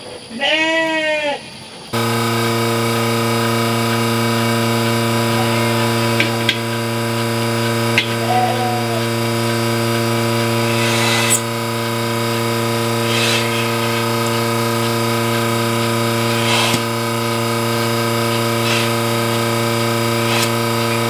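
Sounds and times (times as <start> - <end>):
clicks: 2.0 - 8.2
vacuum pump humming: 2.0 - 21.0.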